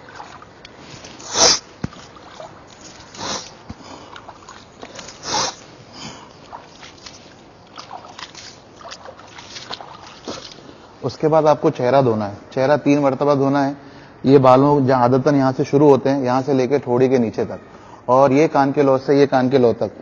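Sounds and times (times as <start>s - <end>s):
man sniffing water into nose: 1.0s - 1.7s, 3.1s - 6.6s.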